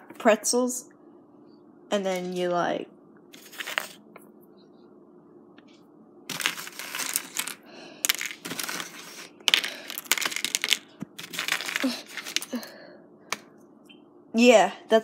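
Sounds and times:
pretzels crunching and crinkling: 6.3 - 12.7.

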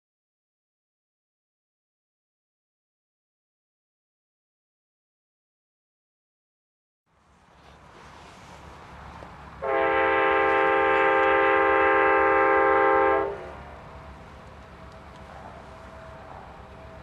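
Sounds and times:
locomotive air horn blast: 9.6 - 13.6.

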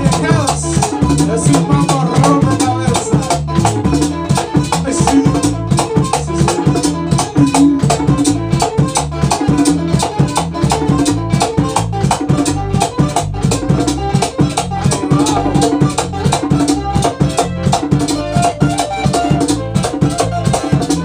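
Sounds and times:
man singing: 0.0 - 3.6, 4.6 - 7.2, 14.9 - 15.9
bass guitar: 0.0 - 21.0
strummed acoustic guitars: 0.0 - 21.0.

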